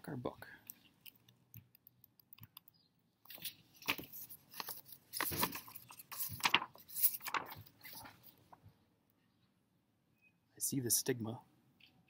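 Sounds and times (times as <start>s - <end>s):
book pages rustling: 3.3s - 8.7s.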